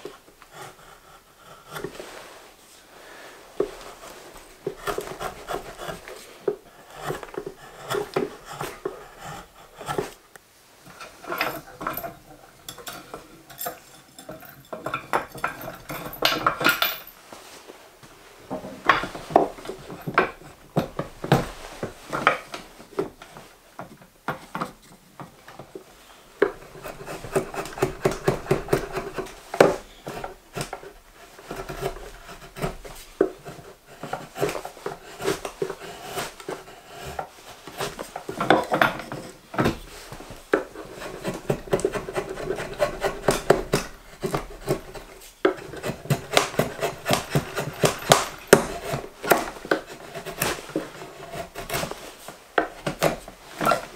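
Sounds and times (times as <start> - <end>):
drawknife scraping wood: 3.1 - 10.2, 10.8 - 14.0, 26.4 - 53.9.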